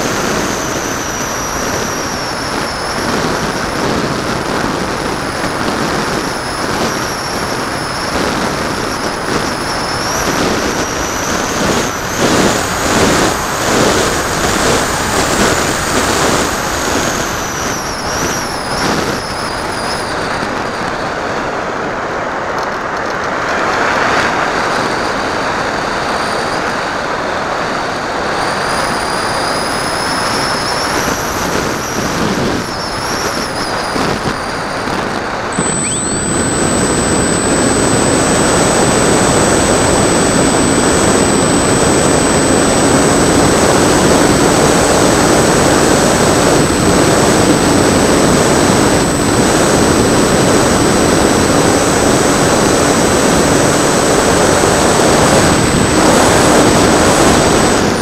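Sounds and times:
faint high whistle: 0:35.5 - 0:44.2.

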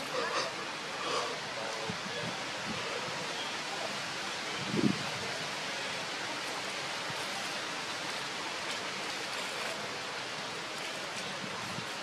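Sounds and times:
outdoor background hiss: 0:00.0 - 0:12.0.

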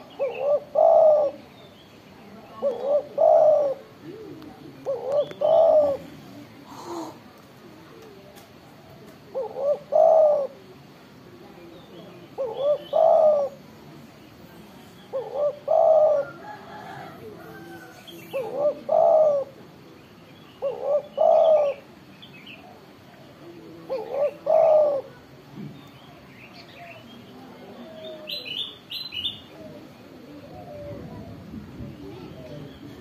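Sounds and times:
dove cooing: 0:00.0 - 0:01.5, 0:02.5 - 0:07.3, 0:08.7 - 0:10.8, 0:12.3 - 0:13.7, 0:15.0 - 0:19.7, 0:20.6 - 0:21.9, 0:22.6 - 0:25.3, 0:27.6 - 0:31.5.

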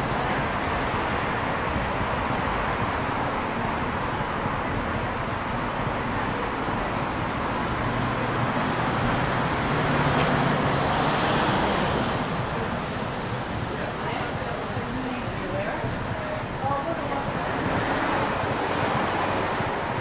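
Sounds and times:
cars passing: 0:00.0 - 0:20.0
vehicle engine hum: 0:00.0 - 0:20.0
sharp click: 0:10.1 - 0:10.4.

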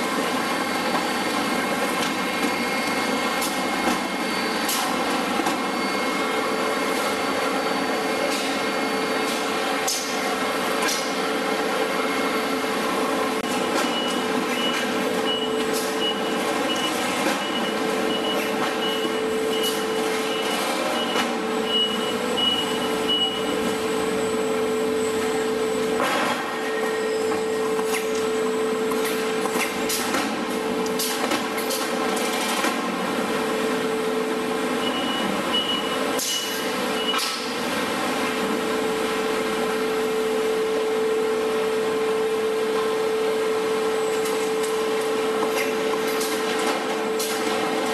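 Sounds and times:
high-pitched beep: 0:13.6 - 0:23.6.

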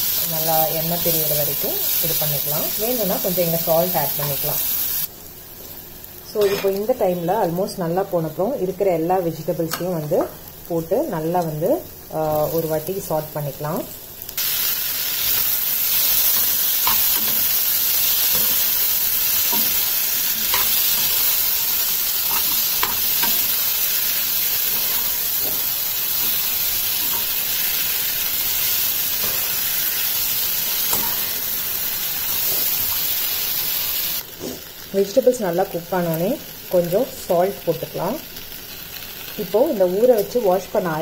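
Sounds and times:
vegetables sizzling in a pan: 0:00.0 - 0:41.0
metal spoon scraping and tapping pan: 0:16.4 - 0:17.5, 0:22.3 - 0:23.5, 0:30.9 - 0:31.3.

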